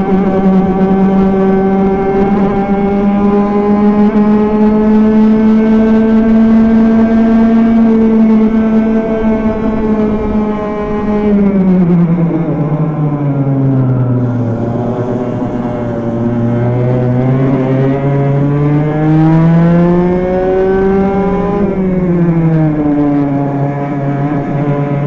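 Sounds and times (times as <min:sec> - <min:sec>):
racing kart engine: 0:00.0 - 0:25.0.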